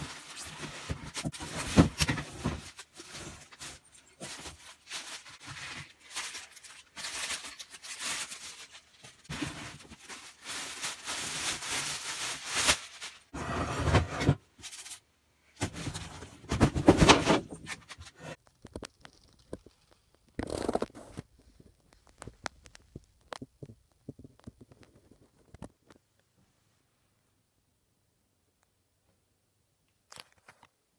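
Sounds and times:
cardboard rustling and scraping: 0.0s - 6.4s, 12.7s - 15.0s, 15.6s - 18.4s
plastic bag crinkling: 2.6s - 13.3s.

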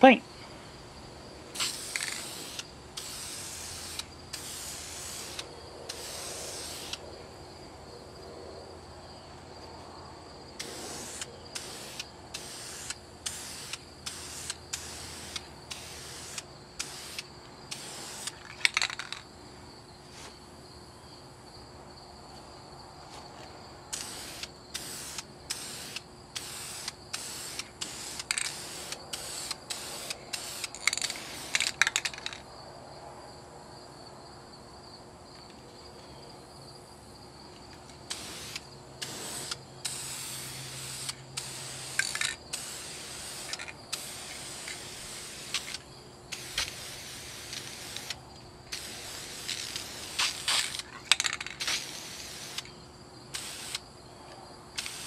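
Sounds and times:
spray paint can hissing: 1.6s - 7.0s, 10.6s - 19.2s, 23.9s - 32.4s, 38.1s - 52.7s, 53.3s - 53.8s, 54.8s - 55.0s.

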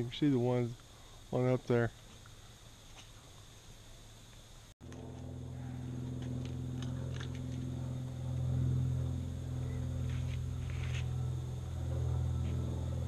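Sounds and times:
low droning hum: 4.8s - 13.0s.

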